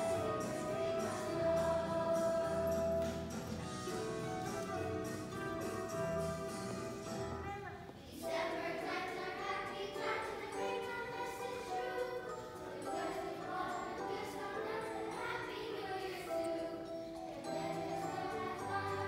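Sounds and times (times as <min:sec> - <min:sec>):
children's choir singing: 0:00.0 - 0:04.0, 0:08.0 - 0:19.0.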